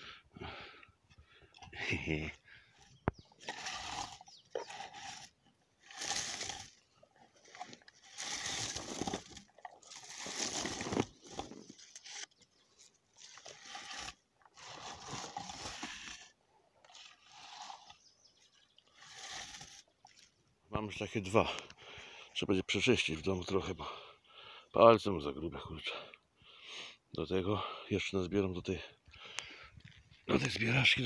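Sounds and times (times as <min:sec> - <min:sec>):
shrub leaves and twigs rustling: 0:01.8 - 0:16.3.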